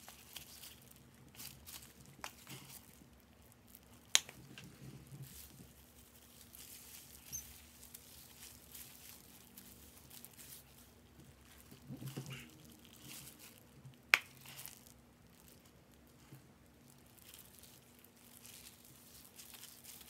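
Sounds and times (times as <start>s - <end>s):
gloved hands rustling through hair: 0.0s - 16.4s, 17.0s - 20.0s
disposable gloves rustling: 0.0s - 20.0s
glove snapping: 4.1s - 4.7s.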